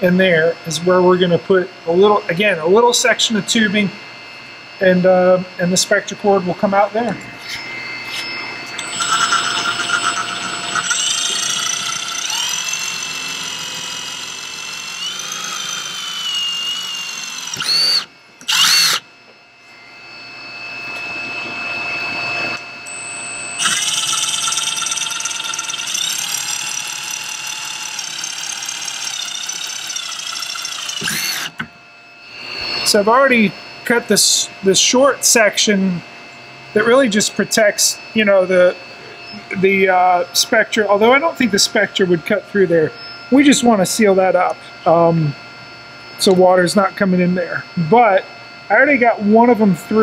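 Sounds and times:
drill motor whining: 0:05.8 - 0:35.8, 0:36.7 - 0:45.4.

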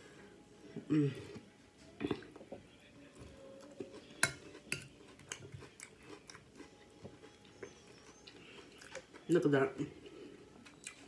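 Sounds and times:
close-up chewing: 0:01.2 - 0:11.0
cutlery clicking against a dish: 0:04.2 - 0:05.6.

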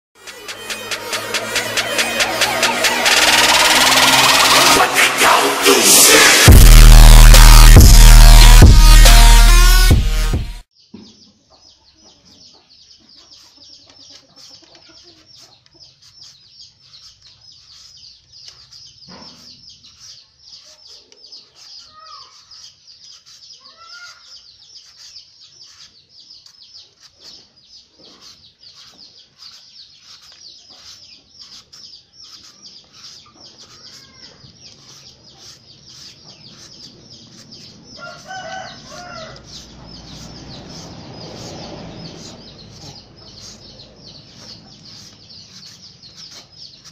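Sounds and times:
chickens clucking: 0:11.0 - 0:16.5
shredder scraping papaya: 0:21.5 - 0:27.4, 0:28.0 - 0:46.9.

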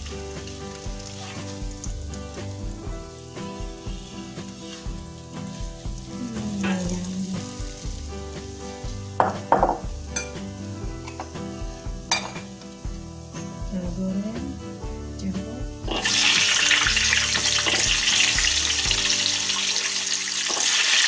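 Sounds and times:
hot oil sizzling in a wok: 0:00.0 - 0:21.0
metal spatula scraping wok: 0:00.7 - 0:01.6, 0:03.2 - 0:07.3
metal clattering on wok: 0:09.2 - 0:10.4, 0:12.1 - 0:12.5.

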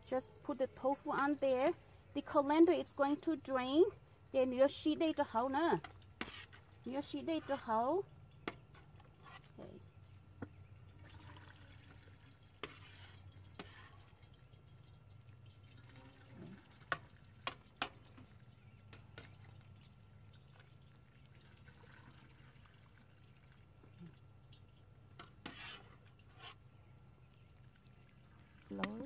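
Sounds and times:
ladle scooping curds: 0:05.0 - 0:29.0
liquid pouring and dripping: 0:09.6 - 0:29.0.

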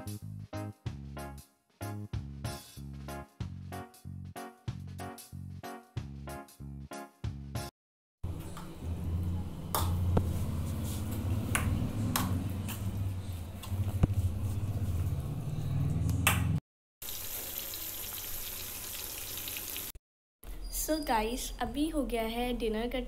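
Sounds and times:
banana frying in oil: 0:17.0 - 0:20.0.

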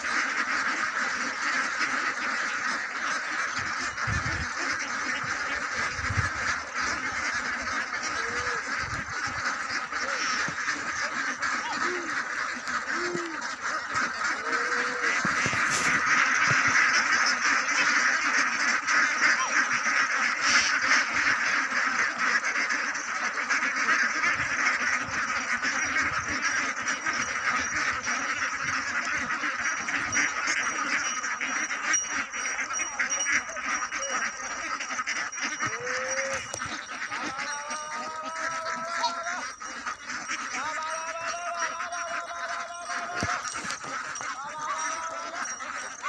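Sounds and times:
flock of ducks quacking: 0:00.0 - 0:46.0
rising pitched call: 0:35.3 - 0:46.0.

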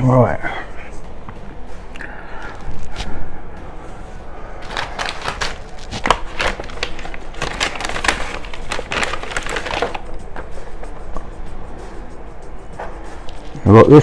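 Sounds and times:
paper bag crinkling and rustling: 0:04.6 - 0:10.1.

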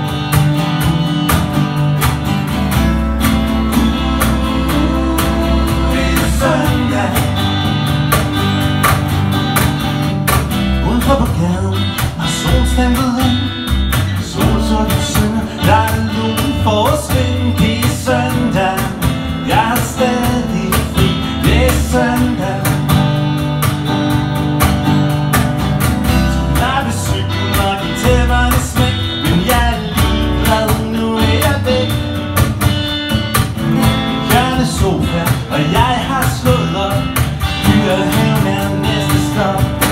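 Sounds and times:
cajon beat: 0:00.0 - 0:39.9
strummed acoustic guitars: 0:00.0 - 0:39.9
man singing: 0:03.6 - 0:08.2, 0:10.8 - 0:23.4, 0:26.3 - 0:32.4, 0:34.1 - 0:39.9.

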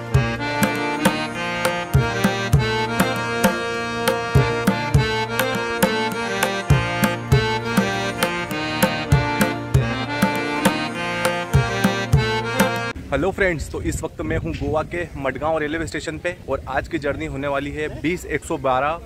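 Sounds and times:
steady drum beat: 0:00.0 - 0:12.9
sustained melodic notes: 0:00.0 - 0:13.0.

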